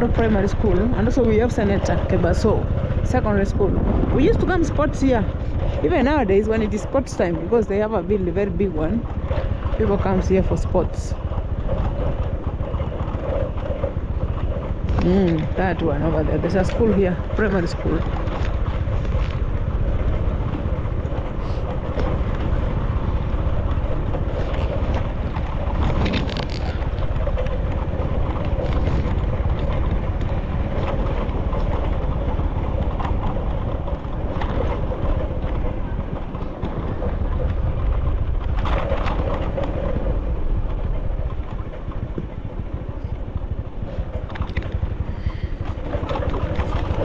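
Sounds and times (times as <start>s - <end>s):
car engine and road rumble: 0.0s - 47.0s
wind buffeting microphone: 0.0s - 47.0s.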